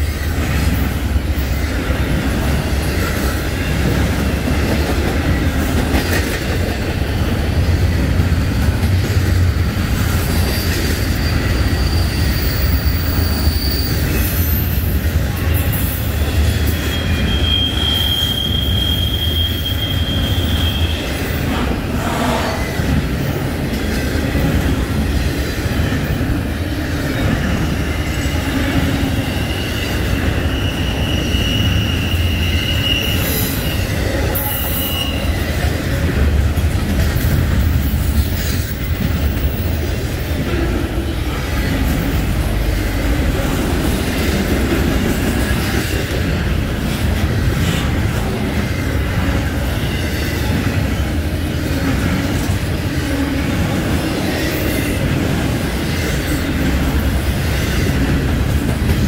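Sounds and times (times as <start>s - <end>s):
train wheels rumbling on rail: 0.0s - 59.0s
high thin wheel squeal: 10.2s - 14.8s, 16.4s - 21.1s, 29.2s - 35.4s.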